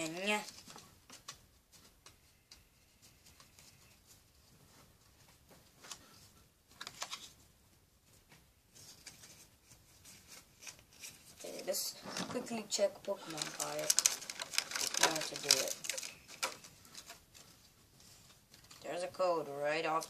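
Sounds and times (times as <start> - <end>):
trading cards clicking and rustling: 13.1 - 17.5.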